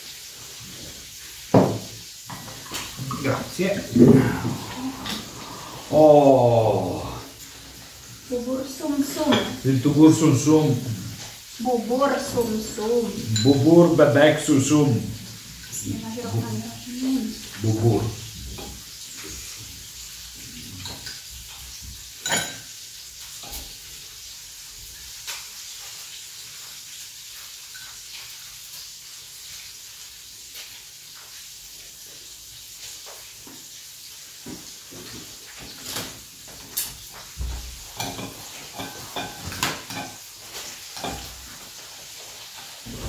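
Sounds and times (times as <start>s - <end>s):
chicken frying in oil: 0.0s - 43.0s
spoons clinking in ceramic bowls: 13.2s - 13.7s, 22.2s - 22.7s, 38.0s - 40.2s.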